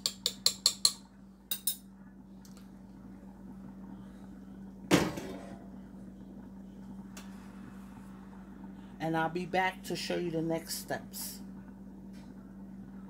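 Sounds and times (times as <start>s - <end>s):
spoon tapping saucepan rim: 0.0s - 1.8s
low hum: 0.7s - 13.0s.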